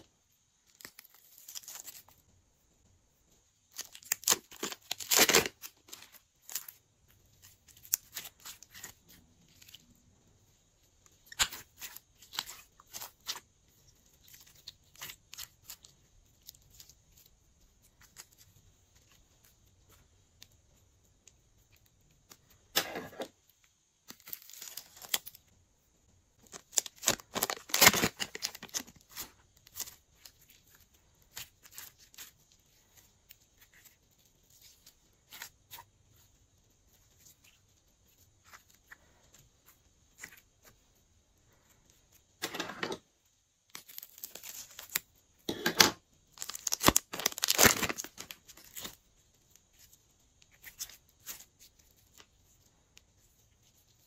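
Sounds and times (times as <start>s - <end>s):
plastic crinkling: 0.0s - 2.2s, 3.6s - 23.4s, 24.0s - 25.6s, 26.4s - 43.0s, 43.6s - 54.0s
sticky slime crackling: 3.5s - 23.1s, 26.4s - 41.0s, 46.2s - 54.0s.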